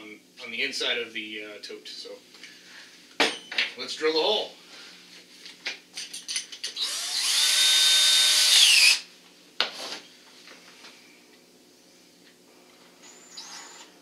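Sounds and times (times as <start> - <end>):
cordless drill whining: 6.8 - 9.0.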